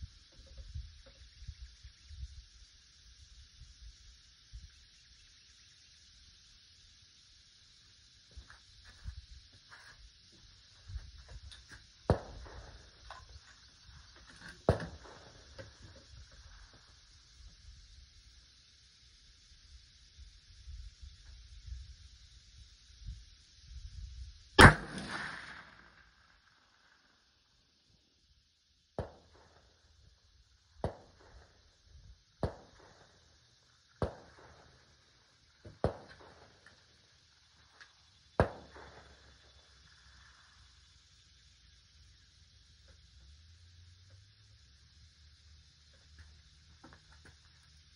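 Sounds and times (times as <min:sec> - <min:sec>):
gunshots with echo: 0:24.6 - 0:26.0
sharp gunshots: 0:24.6 - 0:26.2, 0:35.8 - 0:36.5, 0:38.4 - 0:39.2.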